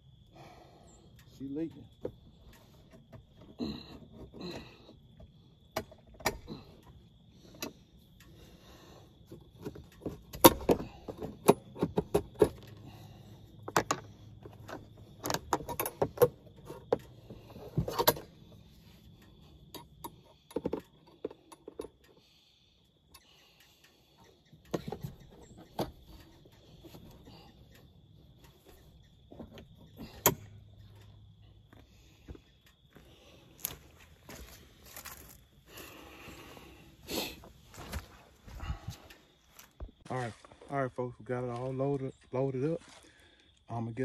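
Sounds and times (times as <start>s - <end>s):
carcass handling clicks and rattles: 9.3s - 12.9s, 13.6s - 18.4s.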